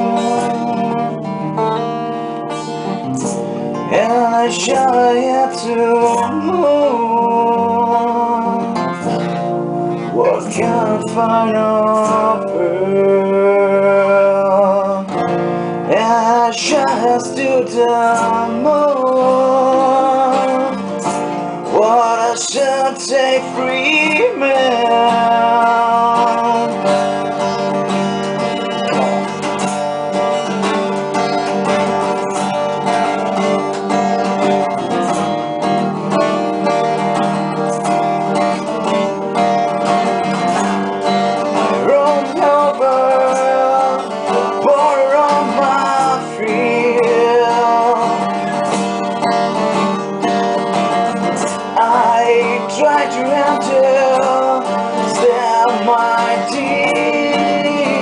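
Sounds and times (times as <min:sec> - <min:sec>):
two acoustic guitars playing: 0:00.0 - 0:58.0.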